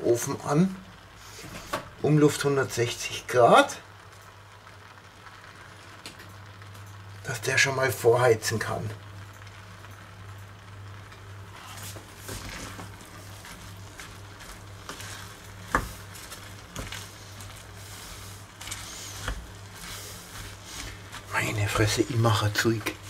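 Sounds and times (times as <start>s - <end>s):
wooden spoon scraping pot: 11.5s - 22.4s.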